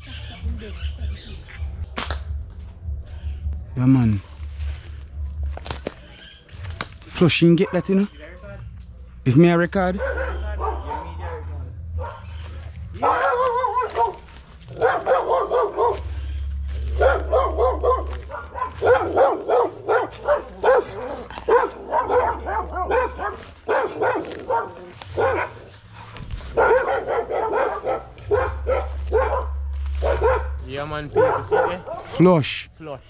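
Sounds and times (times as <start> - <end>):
dog barking and yipping: 7.5 - 8.1, 9.9 - 32.2.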